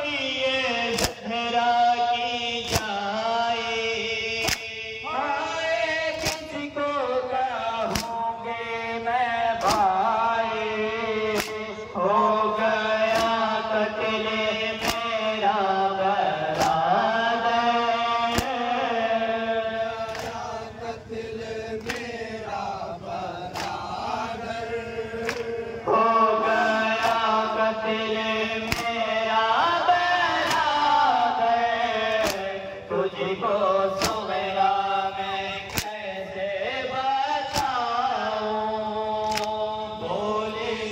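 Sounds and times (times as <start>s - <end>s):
men chanting a lament: 0.0s - 40.9s
chest slapping in unison: 0.9s - 1.3s, 2.6s - 3.1s, 4.4s - 4.8s, 6.1s - 6.6s, 7.9s - 8.3s, 9.6s - 10.0s, 11.3s - 11.8s, 13.0s - 13.6s, 14.8s - 15.3s, 16.5s - 16.9s, 18.3s - 18.8s, 20.0s - 20.6s, 21.8s - 22.3s, 23.5s - 25.6s, 26.9s - 27.4s, 28.6s - 29.1s, 30.4s - 30.9s, 32.0s - 32.6s, 34.0s - 34.3s, 35.6s - 36.1s, 37.4s - 37.8s, 39.2s - 39.6s.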